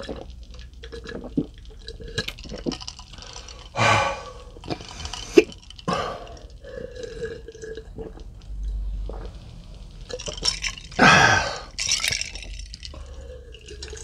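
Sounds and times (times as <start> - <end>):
breathy mouth sounds: 3.2 - 9.6.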